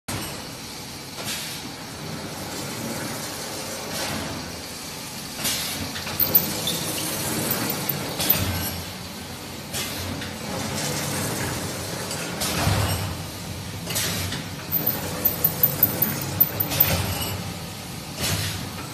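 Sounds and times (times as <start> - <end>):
sharp machine clicks: 14.8 - 17.0.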